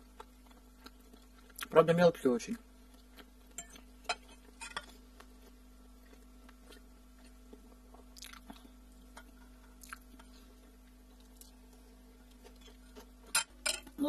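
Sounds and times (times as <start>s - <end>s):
person chewing food: 0.0s - 1.7s, 2.8s - 13.6s
faint steady hum: 0.0s - 14.0s.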